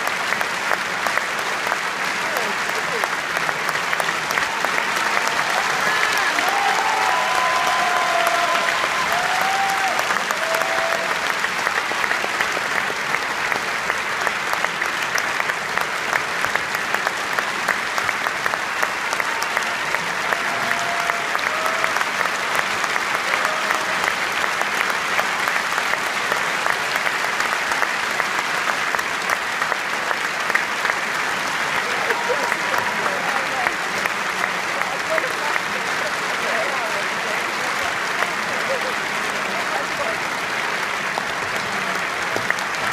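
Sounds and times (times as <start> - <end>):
audience clapping: 0.0 - 42.9
crowd calling out: 5.0 - 11.1.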